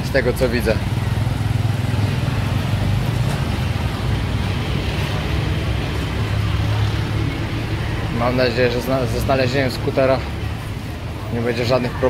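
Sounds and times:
street traffic hum: 0:00.0 - 0:12.0.

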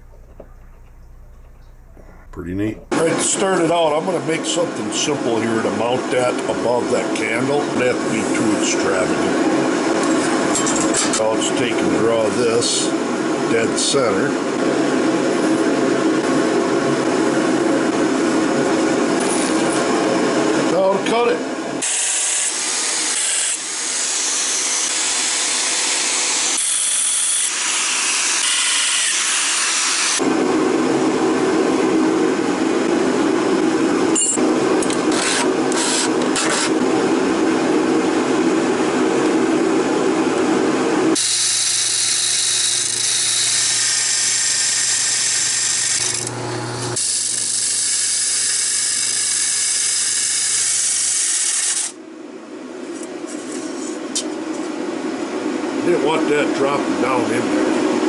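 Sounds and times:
steady low hum: 0:00.0 - 0:21.8
cut-off disc grinding sheet metal: 0:21.8 - 0:30.2, 0:41.2 - 0:52.0.

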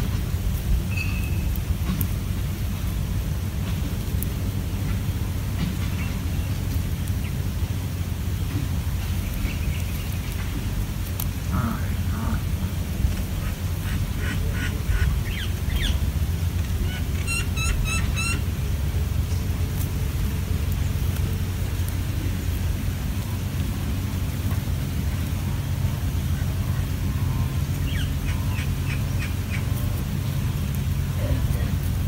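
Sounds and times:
steady low rumble: 0:00.0 - 0:32.0
birds chirping: 0:08.3 - 0:19.6, 0:25.1 - 0:32.0.

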